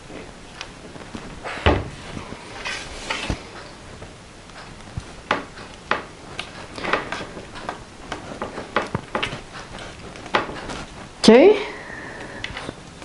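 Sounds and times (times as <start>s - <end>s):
paper rustling: 6.3s - 11.1s.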